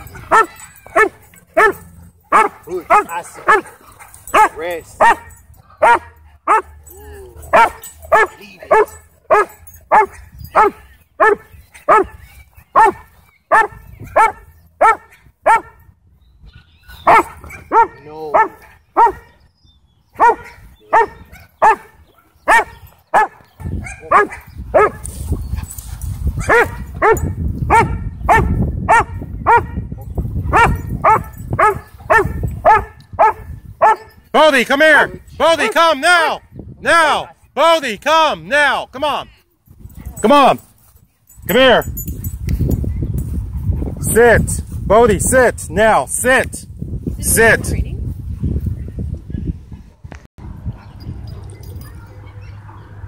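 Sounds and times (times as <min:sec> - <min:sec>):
dog barking: 0:00.0 - 0:06.9, 0:07.5 - 0:12.2, 0:12.8 - 0:15.8, 0:16.6 - 0:19.4, 0:20.2 - 0:25.0, 0:26.4 - 0:29.9, 0:30.5 - 0:34.1.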